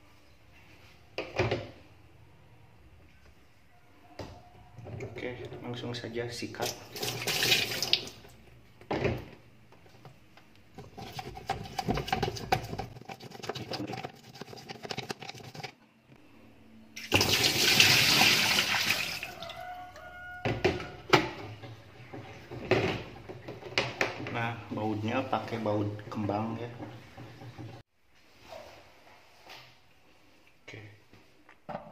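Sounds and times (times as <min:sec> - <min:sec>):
brush scrubbing plastic: 0:10.8 - 0:15.8.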